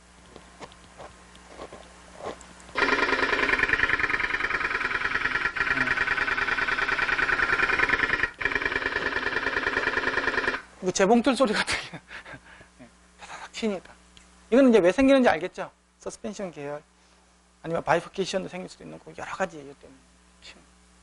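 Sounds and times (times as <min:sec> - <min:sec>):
loudspeaker clattering buzz: 0:02.8 - 0:10.6.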